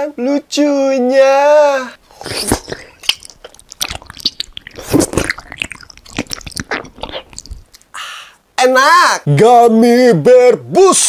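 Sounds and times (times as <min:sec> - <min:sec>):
gummy bite: 0:02.1 - 0:07.9
wet chewing mouth clicks: 0:02.1 - 0:07.9.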